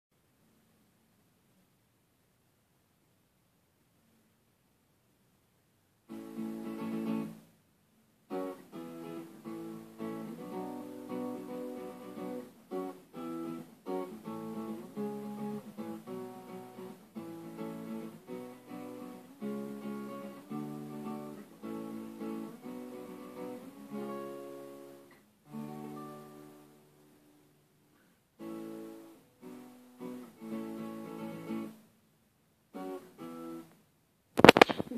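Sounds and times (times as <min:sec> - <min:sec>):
acoustic guitar playing: 0:06.1 - 0:07.5, 0:08.3 - 0:31.9, 0:32.7 - 0:33.8, 0:34.4 - 0:34.9.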